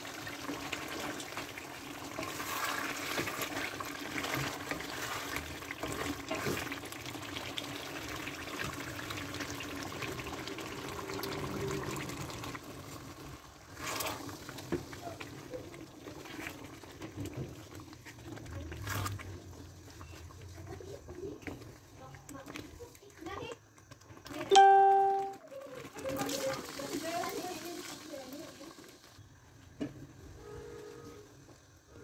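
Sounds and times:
curry sizzling and bubbling in a pan: 0.0 - 32.0.

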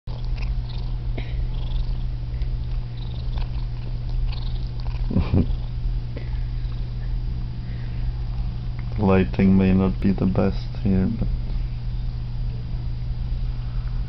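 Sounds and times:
cat purring: 0.1 - 7.1.

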